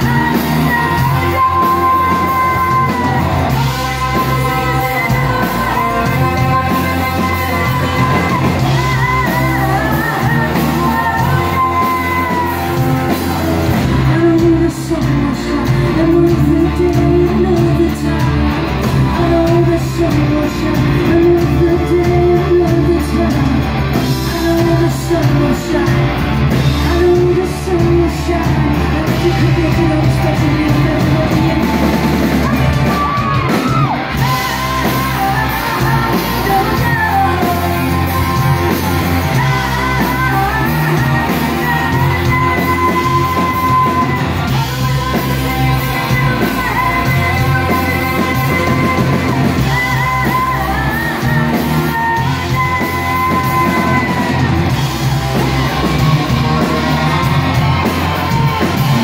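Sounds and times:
live rock band playing: 0.0 - 59.0
woman singing: 0.0 - 59.0.

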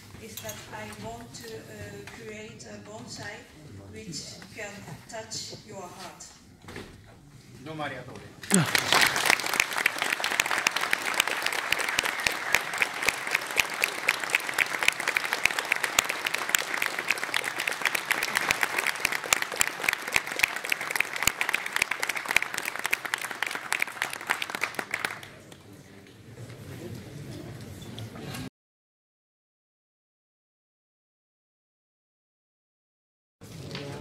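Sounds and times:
audience applauding: 8.4 - 25.6.

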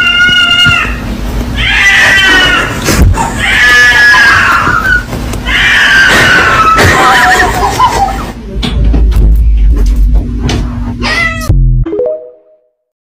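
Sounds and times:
cat yowling: 1.6 - 2.8, 3.4 - 7.4, 11.0 - 11.5.

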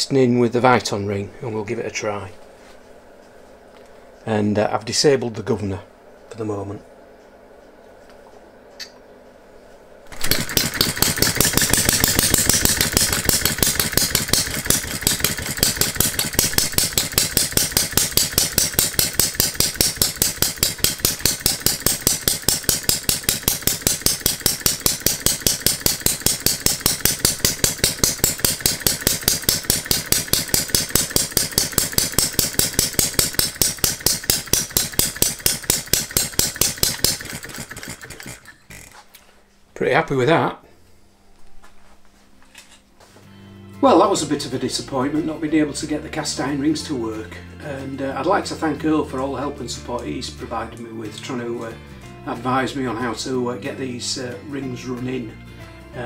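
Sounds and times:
flywheel spun by hand: 10.1 - 39.0
small engine running steadily: 10.1 - 39.0.

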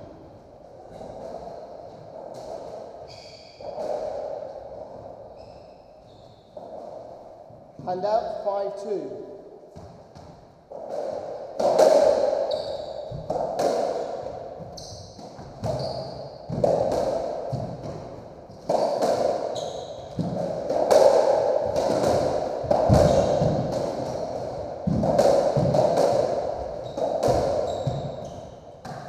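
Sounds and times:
ball hitting rackets and walls: 0.0 - 8.2, 9.6 - 29.0
shoes squeaking on wooden floor: 3.0 - 4.4, 5.0 - 7.0, 12.4 - 13.3, 14.4 - 16.9, 17.5 - 20.6, 26.6 - 29.0.

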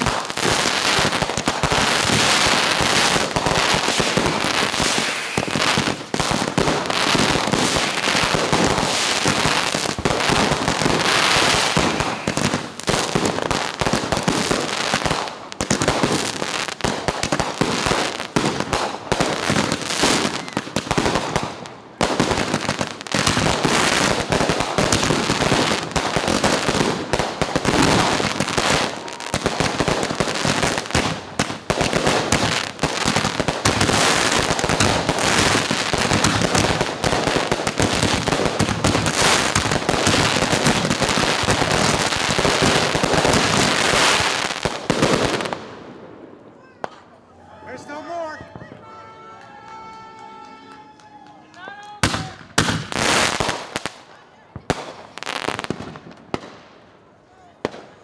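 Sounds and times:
fireworks bangs and crackles: 0.0 - 50.5, 51.9 - 58.0.

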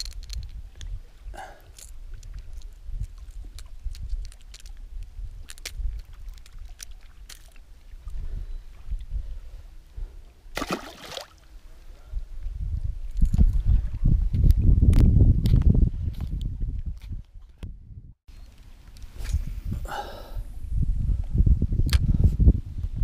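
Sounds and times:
wind buffeting microphone: 0.0 - 23.0
fish splashing into water: 10.6 - 11.4.

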